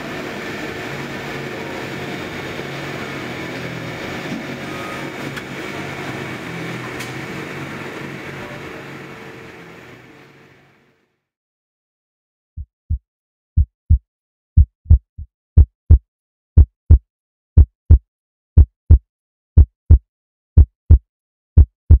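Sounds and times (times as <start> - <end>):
heartbeat thumps: 12.6 - 13.0, 13.6 - 14.0, 14.6 - 16.0, 16.6 - 17.0, 17.6 - 18.0, 18.6 - 19.0, 19.6 - 20.0, 20.6 - 21.0, 21.6 - 22.0.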